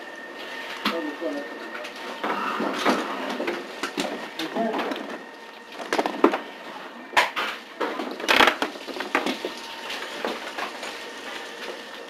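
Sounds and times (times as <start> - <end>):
debris knocking and crunching: 7.2 - 10.8.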